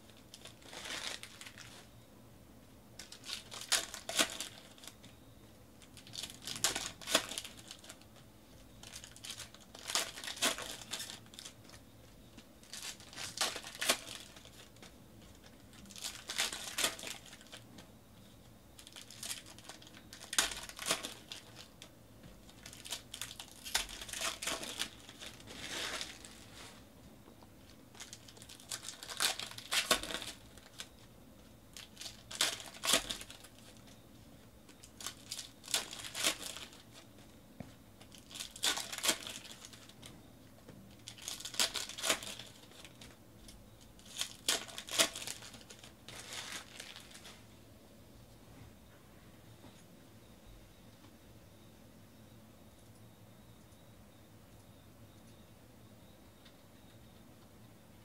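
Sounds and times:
foil wrappers crinkling and tearing: 0.1s - 1.9s, 3.0s - 5.1s, 5.8s - 8.2s, 8.8s - 17.8s, 18.8s - 26.8s, 27.6s - 31.1s, 31.7s - 34.0s, 34.7s - 37.1s, 38.0s - 40.1s, 40.9s - 47.4s.

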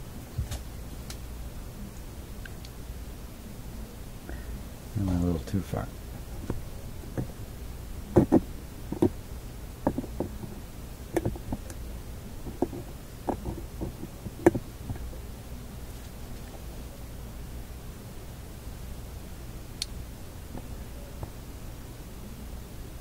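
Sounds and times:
steady low hum: 0.0s - 23.0s
light clicks and knocks: 9.8s - 10.6s, 11.2s - 11.8s, 12.5s - 15.1s.

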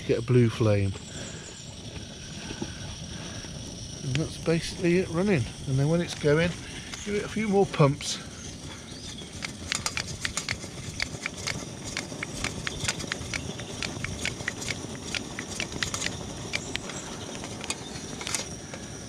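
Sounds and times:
stove burner rushing: 0.0s - 19.0s
stove pump plunger clicks: 9.4s - 18.5s.

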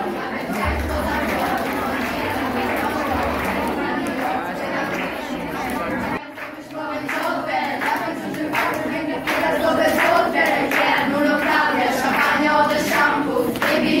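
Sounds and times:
girls singing in chorus: 0.0s - 14.0s.

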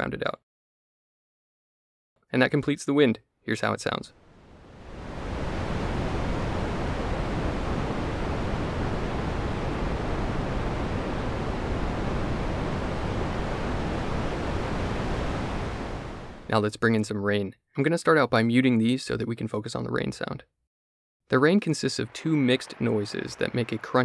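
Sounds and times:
synthesized wind hiss: 4.2s - 16.6s, 21.7s - 24.0s.

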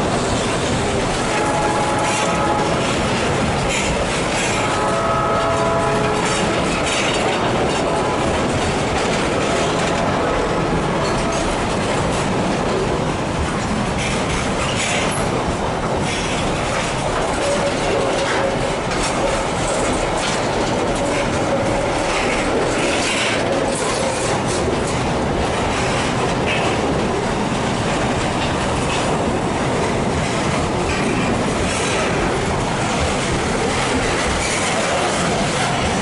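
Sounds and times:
clacking over rail joints: 0.0s - 36.0s
steel wheels rumbling on rail: 0.0s - 36.0s.

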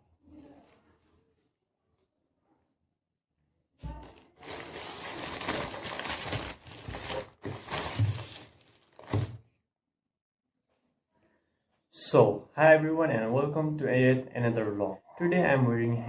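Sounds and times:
plastic bags crinkling: 4.0s - 9.4s.

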